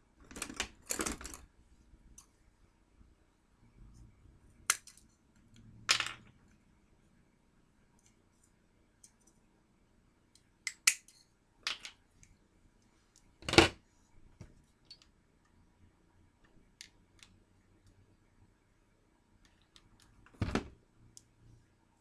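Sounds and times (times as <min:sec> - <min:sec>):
thump on tabletop: 0:20.4 - 0:20.7.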